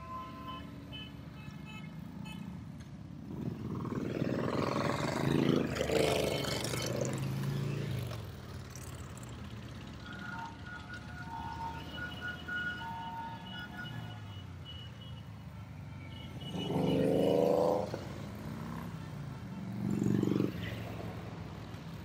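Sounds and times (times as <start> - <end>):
motorcycles riding past: 3.2 - 10.8, 16.4 - 22.0.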